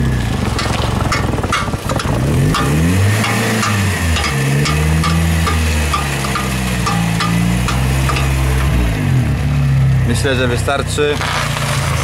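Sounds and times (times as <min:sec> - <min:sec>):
car engine running: 0:00.0 - 0:10.9
drive shaft joint clicking: 0:00.6 - 0:08.8.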